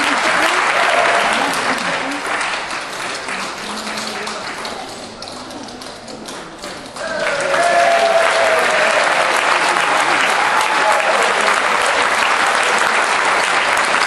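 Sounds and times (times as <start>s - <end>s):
audience applause: 0.0s - 14.0s
cheering and whoops: 0.2s - 1.6s, 7.0s - 12.1s.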